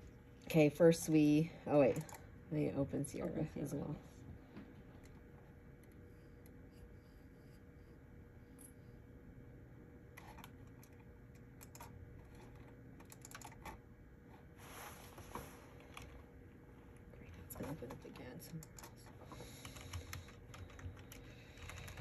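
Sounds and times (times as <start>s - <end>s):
low steady hum: 0.0s - 22.0s
keyboard typing: 10.2s - 13.8s, 17.6s - 22.0s.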